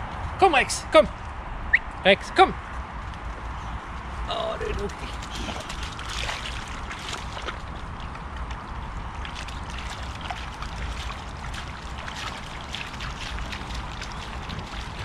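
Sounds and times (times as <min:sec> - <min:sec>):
steady low rumble: 0:00.0 - 0:15.0
dog splashing in puddle: 0:04.7 - 0:15.0.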